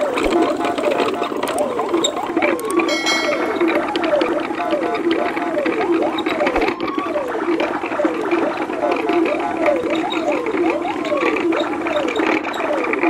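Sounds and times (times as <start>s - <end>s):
looping electronic track: 2.9s - 4.2s.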